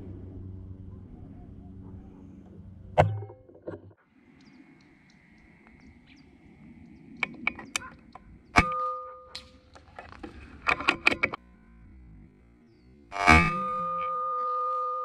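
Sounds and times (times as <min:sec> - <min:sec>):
light clicks: 0:04.3 - 0:08.3.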